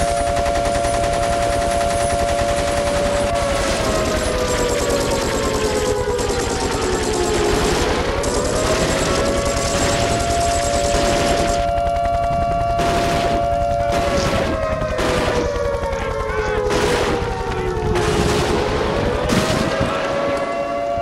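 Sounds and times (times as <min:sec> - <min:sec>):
rapid rattling clatter: 0:00.0 - 0:11.7
two-tone warning siren: 0:00.0 - 0:21.0.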